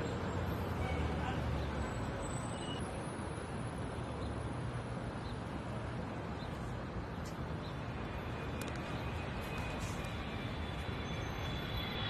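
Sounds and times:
traffic rumble: 0.0s - 12.0s.

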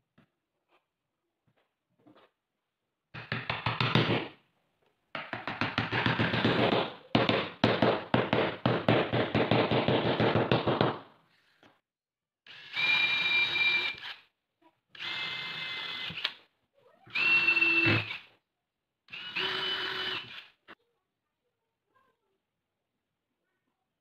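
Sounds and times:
cordless drill whining: 12.5s - 14.2s, 14.9s - 16.4s, 17.1s - 18.3s, 19.1s - 20.6s.

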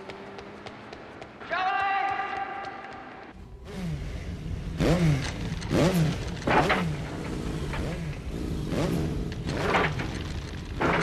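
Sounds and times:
motorcycle engine revving: 3.6s - 11.0s.

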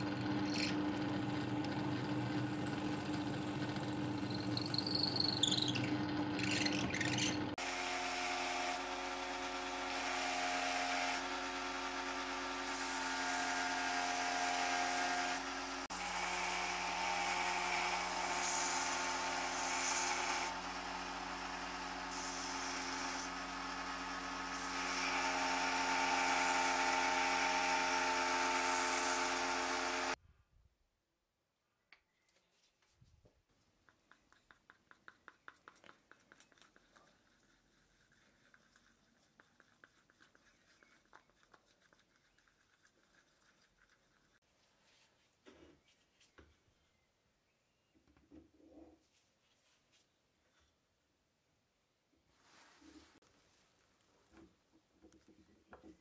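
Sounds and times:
drill press boring through wood: 0.0s - 30.2s
belt sander sanding wood: 7.6s - 30.2s.

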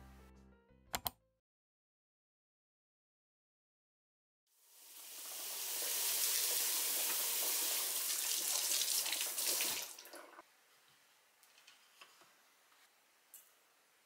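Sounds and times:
tap water running into sink: 4.9s - 10.4s.

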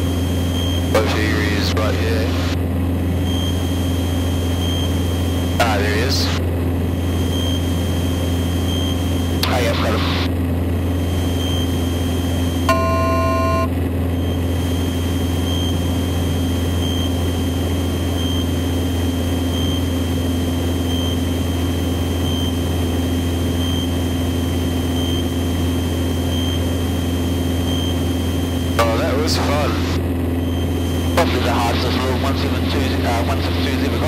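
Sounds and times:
aircraft engine and propeller droning: 0.0s - 34.0s
faint high electronic whine: 0.0s - 34.0s
short electronic beep: 12.7s - 14.4s.

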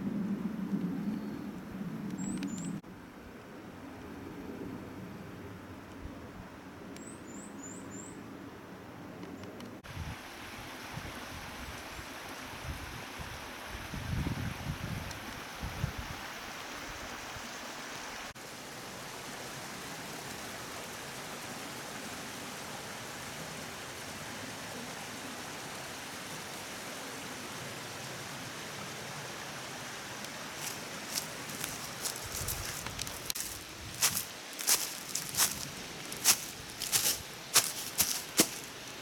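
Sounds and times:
mountain stream and waterfall rushing: 10.0s - 39.0s.

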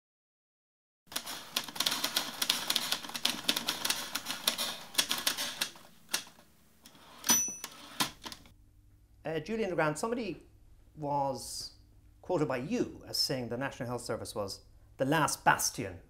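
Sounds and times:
typewriter keys clacking: 1.1s - 6.4s
typewriter bell ding: 7.2s - 8.0s.

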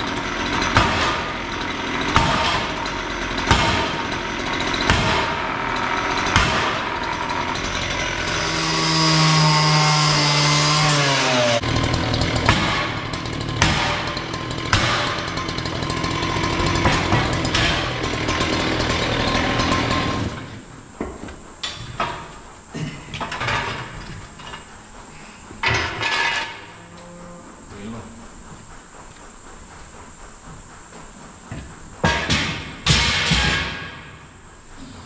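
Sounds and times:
power tool running: 0.0s - 22.5s
metal bars clanking: 21.6s - 25.0s, 25.6s - 28.2s.

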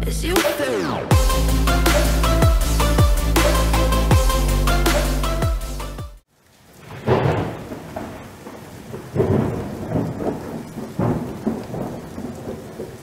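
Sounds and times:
rain hissing: 1.1s - 13.0s
rolling thunder: 6.8s - 13.0s.

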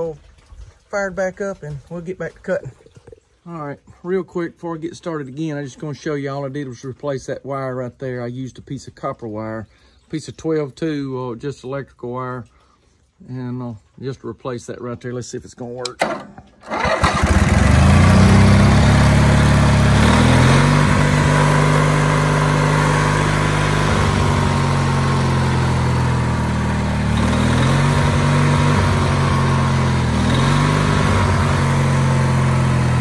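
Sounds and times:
gasoline engine revving: 16.6s - 33.0s.

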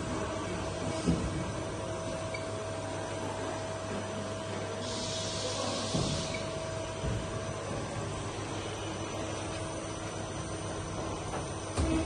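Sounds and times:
machine hum and whine: 0.0s - 12.0s
hiss: 4.8s - 6.5s.

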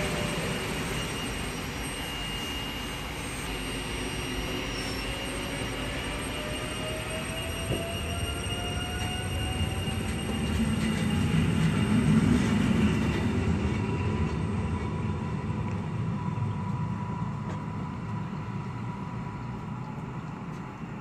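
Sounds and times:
train rumbling past on rails: 0.0s - 21.0s.

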